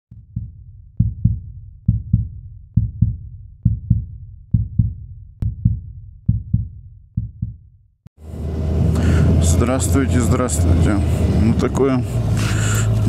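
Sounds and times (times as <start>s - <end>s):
deep heartbeat-like thumps: 0.1s - 7.9s.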